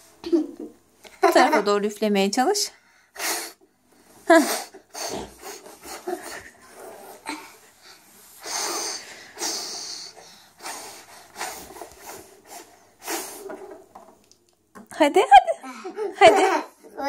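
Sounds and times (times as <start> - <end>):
child blowing breathy puffs: 2.9 - 13.6.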